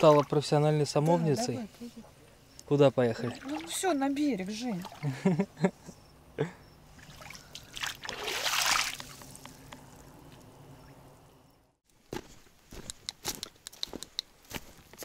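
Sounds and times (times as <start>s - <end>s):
water trickling and splashing: 0.0s - 1.6s, 2.8s - 5.5s, 6.9s - 10.4s.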